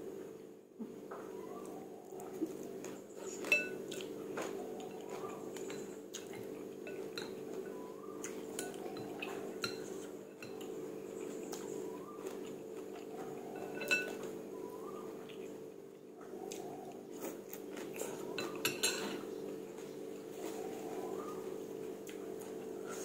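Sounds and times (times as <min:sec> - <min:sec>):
utensils clinking on ceramic bowl: 0:03.4 - 0:04.0, 0:05.0 - 0:07.7, 0:08.5 - 0:10.7, 0:13.3 - 0:14.3, 0:18.3 - 0:19.3.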